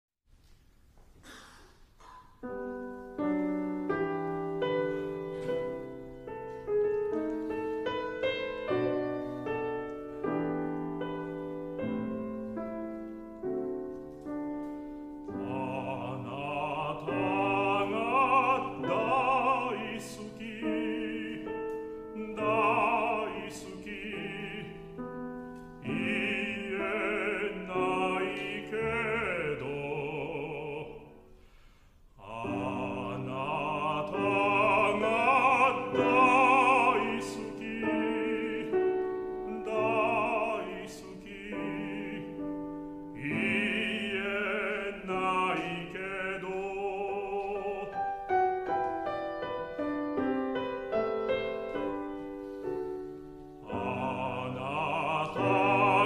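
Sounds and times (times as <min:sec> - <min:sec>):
grand piano playing: 0:02.3 - 0:31.4, 0:32.2 - 0:56.0
baritone singing with vibrato: 0:15.2 - 0:31.4, 0:32.2 - 0:48.9, 0:53.2 - 0:56.0.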